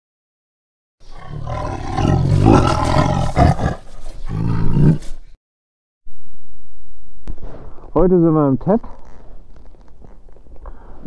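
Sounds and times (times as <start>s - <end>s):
tiger roaring: 1.0s - 5.2s.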